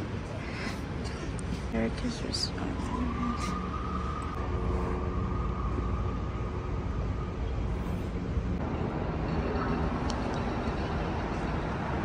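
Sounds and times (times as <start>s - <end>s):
traffic rumble: 0.0s - 12.0s.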